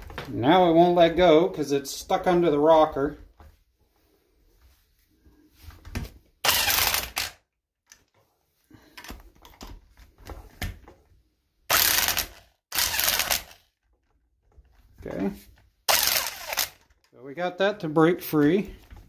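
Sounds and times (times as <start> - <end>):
impact wrench hammering: 6.5 - 7.4, 11.7 - 13.6, 15.9 - 16.8.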